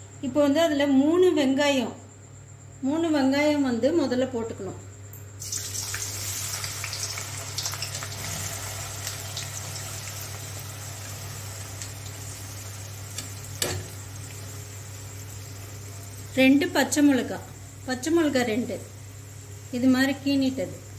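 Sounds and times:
onions sizzling in hot oil: 5.4 - 18.0.

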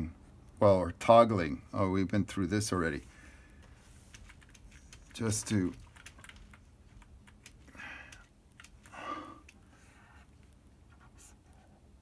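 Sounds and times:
keyboard keys clicking: 4.1 - 9.6.

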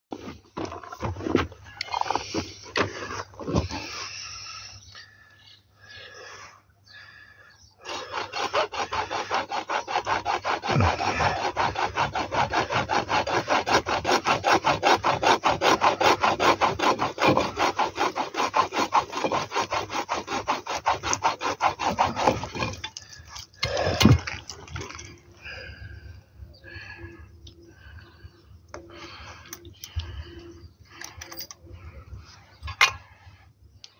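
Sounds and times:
hacksaw cutting metal pipe: 7.9 - 24.2.

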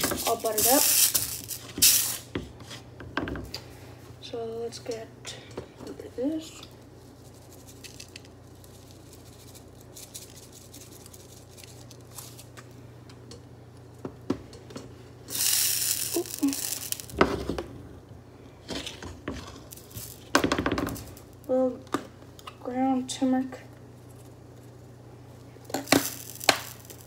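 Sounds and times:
faint steady hum: 0.0 - 27.0
rasping hiss: 15.3 - 17.2.

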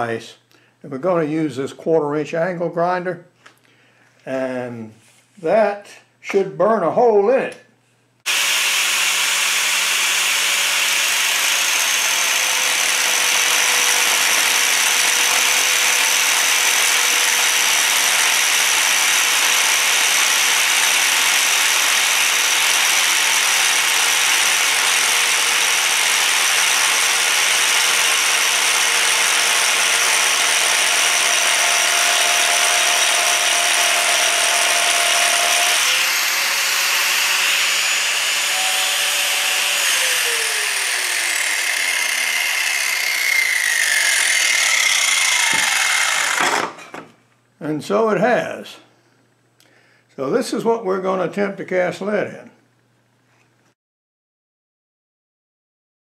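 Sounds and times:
angle grinder cutting wood: 8.2 - 47.0.

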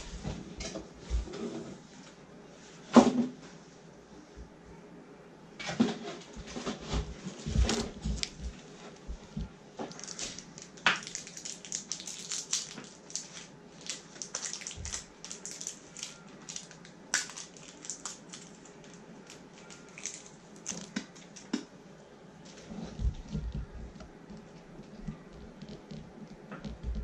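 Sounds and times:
dense irregular crackling: 6.4 - 21.6.

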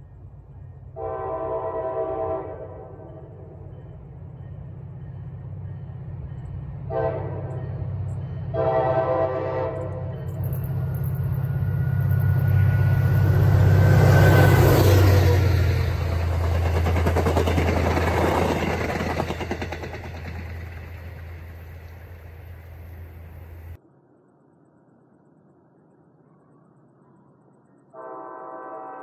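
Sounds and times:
diesel locomotive engine drone: 0.0 - 23.8
train wheel and rail noise: 0.0 - 23.8
locomotive horn blasts: 1.0 - 3.1, 6.9 - 7.6, 8.5 - 10.1, 28.0 - 29.0.

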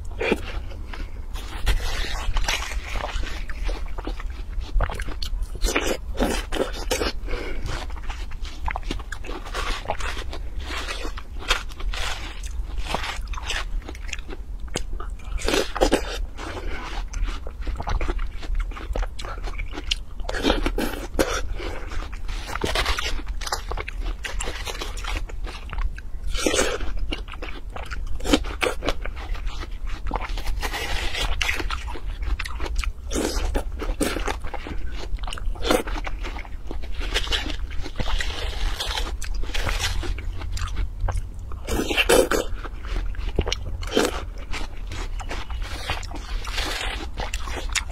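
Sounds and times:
low steady hum: 0.0 - 47.9
crunching bites of watermelon: 28.2 - 47.9.

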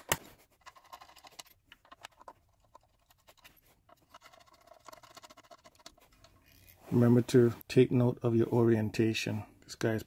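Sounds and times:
faint clicks and scratches of handling: 0.1 - 7.1.

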